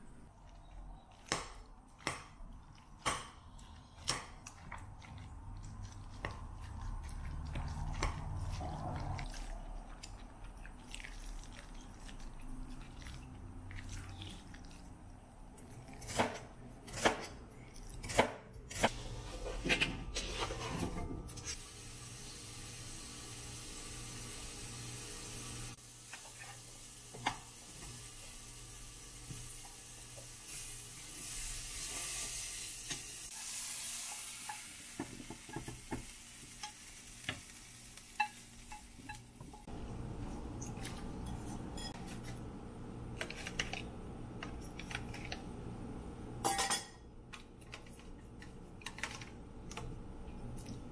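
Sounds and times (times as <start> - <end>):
vegetables sizzling in a frying pan: 21.6 - 39.4
utensils clinking on crockery: 46.4 - 48.0.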